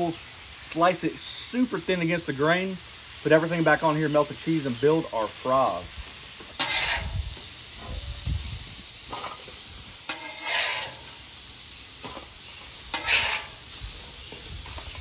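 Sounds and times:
fries sizzling in oil: 0.0 - 15.0
metal spatula scraping griddle: 6.5 - 8.1, 9.0 - 11.4, 12.0 - 15.0.

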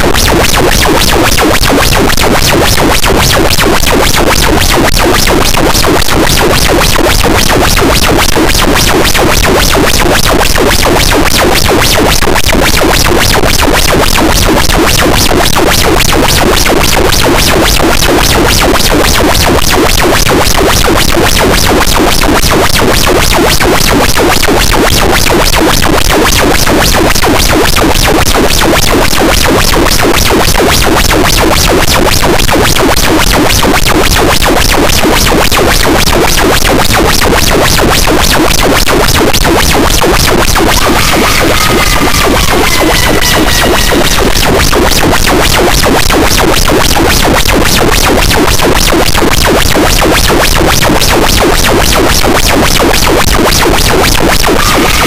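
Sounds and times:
harsh distorted noise wall: 0.0 - 55.0.

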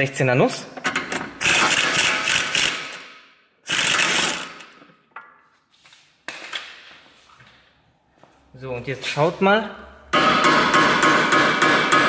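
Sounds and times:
impact wrench hammering: 0.8 - 5.0, 10.1 - 12.0.

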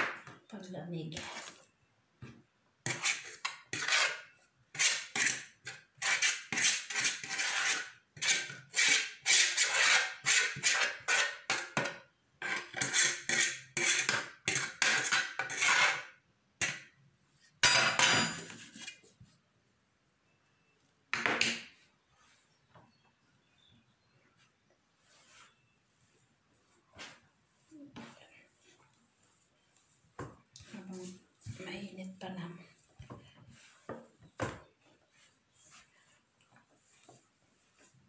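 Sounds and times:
utensil scraping a cooking pot: 2.8 - 16.8.

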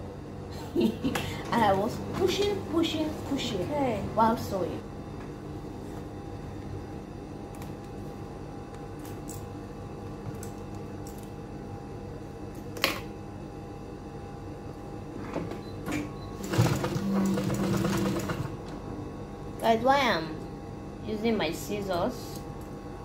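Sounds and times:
sewing machine hum: 16.3 - 18.7
sewing machine stitching: 16.4 - 18.5.

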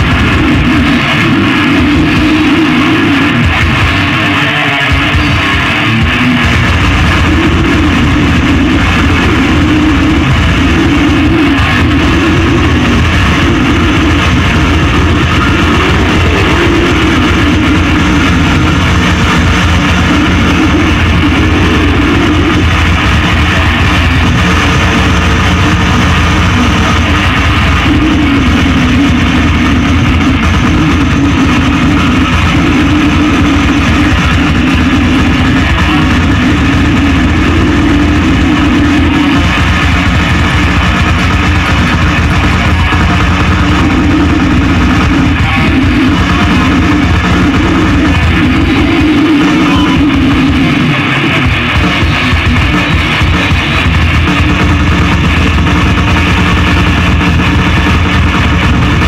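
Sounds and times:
distorted electric guitar: 0.0 - 59.0
drums: 0.0 - 59.0.

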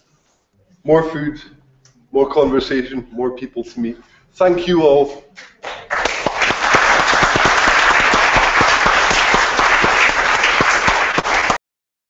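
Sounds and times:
audience applauding: 5.6 - 11.6.

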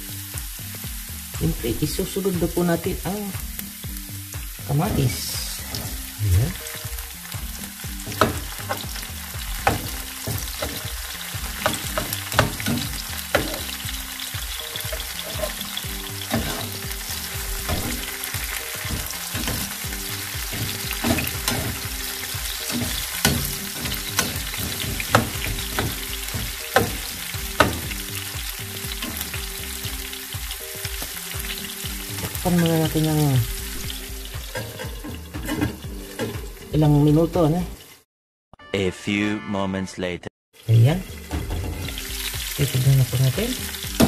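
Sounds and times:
vegetables sizzling in oil: 0.0 - 38.0, 40.6 - 44.0
utensil scraping pan: 14.8 - 27.9.

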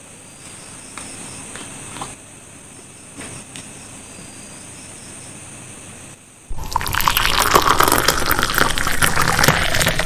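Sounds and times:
drink pouring into a glass: 6.5 - 10.0.

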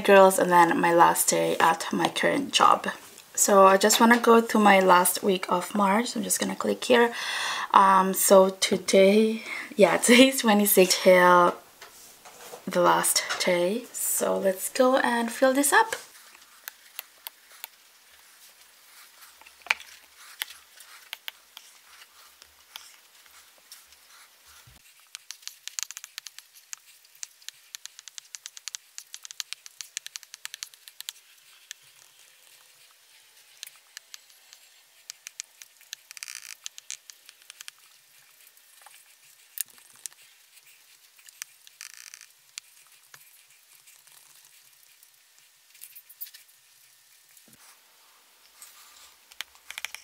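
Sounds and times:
stylus scratchy strokes: 14.1 - 47.8.

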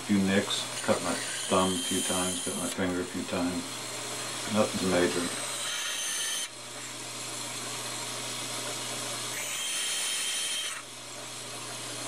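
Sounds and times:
bandsaw cutting brass: 0.0 - 6.5.

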